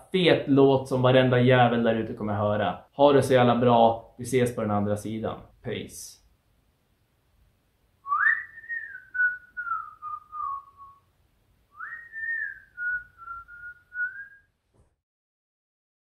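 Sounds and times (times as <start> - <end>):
person whistling a tune: 8.0 - 11.0, 11.8 - 14.5.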